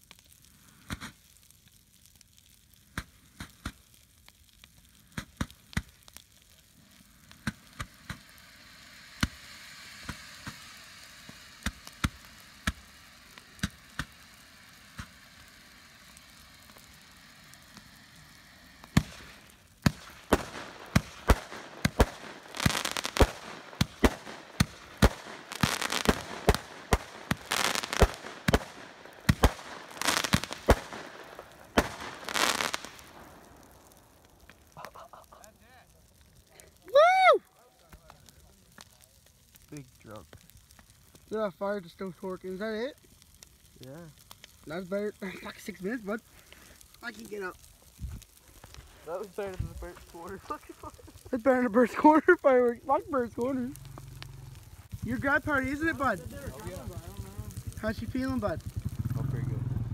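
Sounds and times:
faint hiss: 0:00.0 - 0:59.9
firework crackling bursts: 0:00.0 - 0:59.9
firework bangs: 0:07.3 - 0:35.9, 0:53.1 - 0:59.9.

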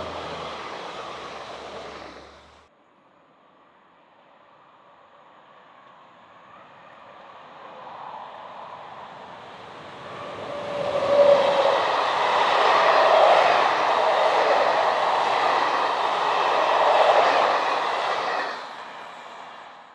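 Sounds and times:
train wheels rushing on rail: 0:00.0 - 0:02.7, 0:07.7 - 0:19.9.

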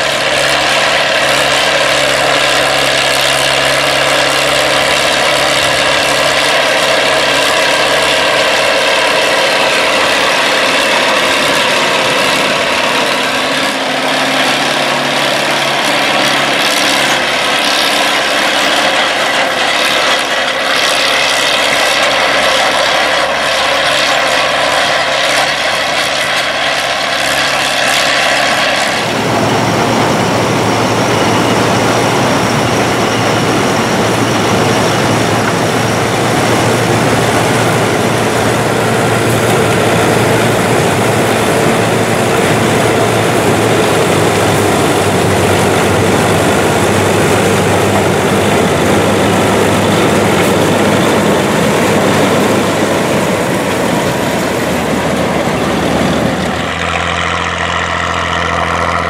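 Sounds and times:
corn picker mechanism running: 0:00.0 - 0:59.0
tractor engine under load: 0:00.0 - 0:59.0.

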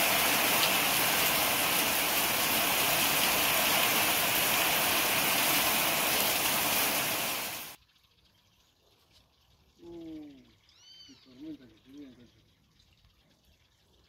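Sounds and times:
heavy rain on patio: 0:00.0 - 0:07.8.

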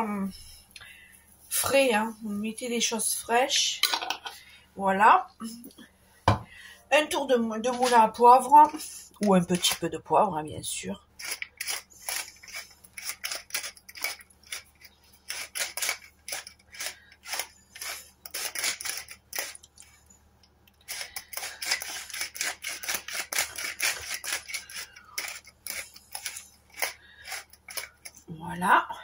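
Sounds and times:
pepper mill grinding: 0:07.6 - 0:09.9, 0:11.0 - 0:20.1, 0:20.7 - 0:28.3.

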